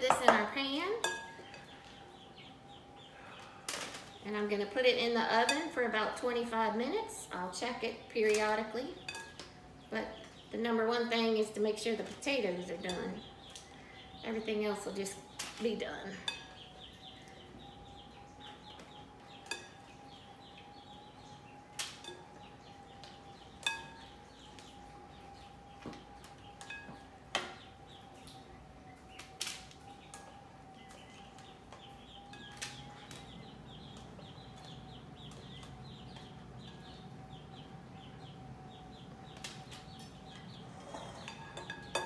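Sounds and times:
faint steady hum: 0.0 - 42.0
spoons clinking on glass bowl: 1.0 - 1.6, 41.0 - 42.0.

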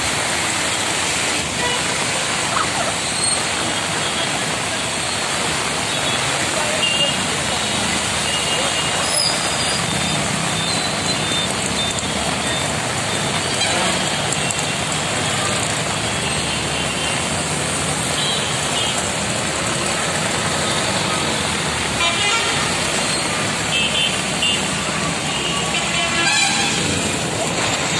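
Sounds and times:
heavy rain pouring: 0.0 - 27.9
vehicle engines running: 0.0 - 27.9
vehicles splashing through water: 0.0 - 27.9
car horn toots: 25.7 - 27.0.

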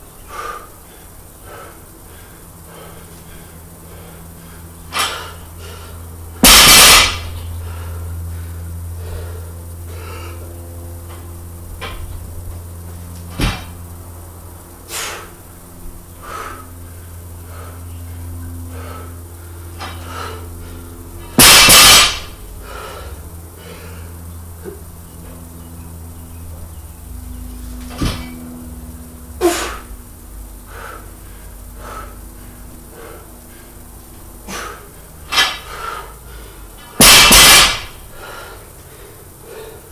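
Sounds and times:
steady low hum: 0.0 - 39.9
person exhaling forcefully: 29.4 - 29.9, 30.7 - 33.7, 34.4 - 35.0.

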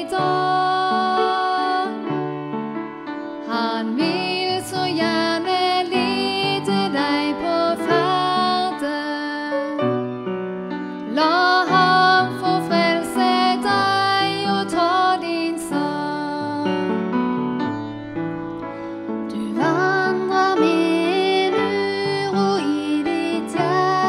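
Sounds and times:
woman singing into microphone: 0.0 - 2.1, 3.4 - 9.9, 11.1 - 16.9, 19.3 - 24.0
upright piano: 0.0 - 24.0.

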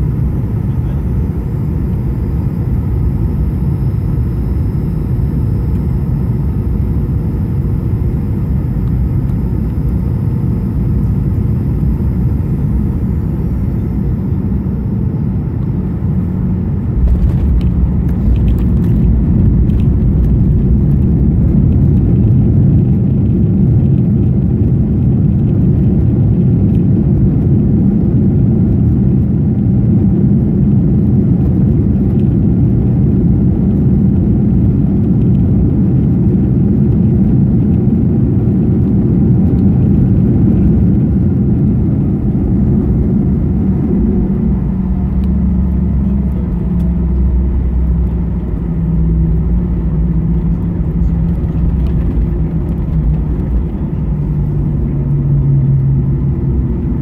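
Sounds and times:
high whine sliding down: 0.0 - 22.6
jet engine cabin rumble: 0.0 - 57.0.

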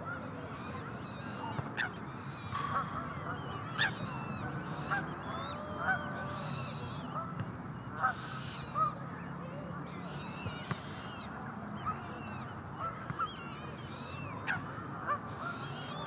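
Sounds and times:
soft goose calls: 0.6 - 9.0, 9.8 - 16.0
geese honking: 2.5 - 7.0.

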